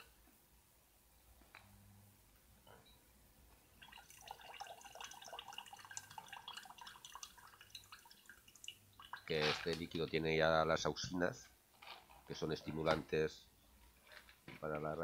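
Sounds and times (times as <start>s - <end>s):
water dripping into glass jar: 3.7s - 9.4s.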